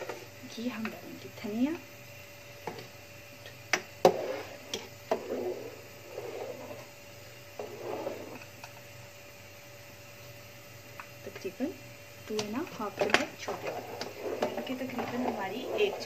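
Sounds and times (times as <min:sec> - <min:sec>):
faint steady hum: 0:00.0 - 0:16.0
spoon scraping pot: 0:04.0 - 0:06.9, 0:07.6 - 0:08.7, 0:12.9 - 0:16.0.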